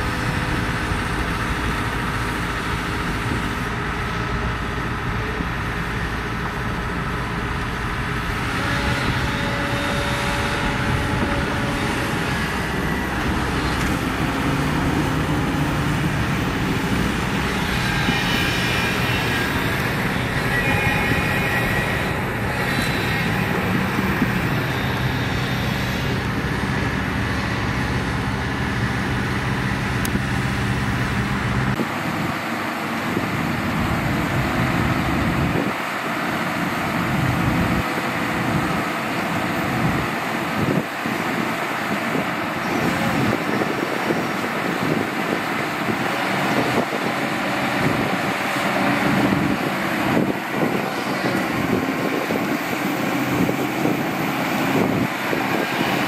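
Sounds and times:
diesel earthmoving machinery: 0.0 - 56.0
machine whining tones: 8.0 - 28.1.

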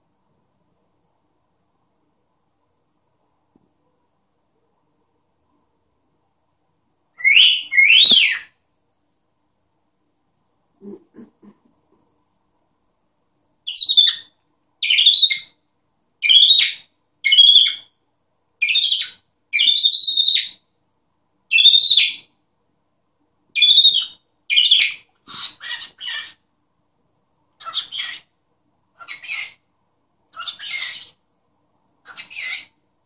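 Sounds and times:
cockatiel shrill calls: 7.2 - 8.5, 13.7 - 15.5, 16.2 - 17.9, 18.6 - 20.6, 21.5 - 22.3, 23.6 - 26.4, 27.6 - 28.3, 29.0 - 29.6, 30.3 - 31.2, 32.0 - 32.7.

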